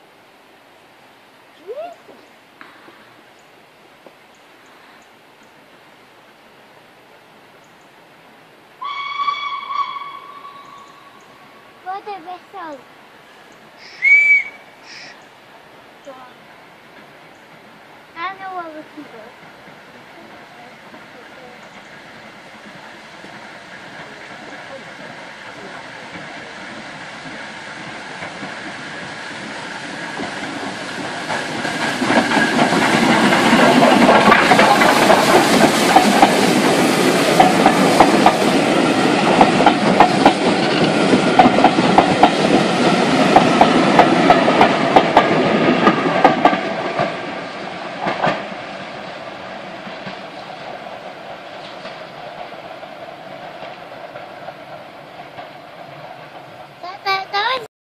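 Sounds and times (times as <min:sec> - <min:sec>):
steam train passing: 0:00.0 - 0:57.7
wheels clattering over rail joints: 0:16.0 - 0:57.7.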